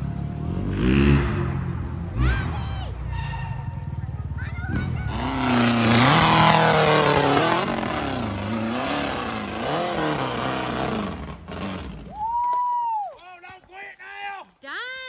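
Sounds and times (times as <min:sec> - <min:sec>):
buggy engine revving hard: 0:00.5 - 0:02.6, 0:04.6 - 0:12.1.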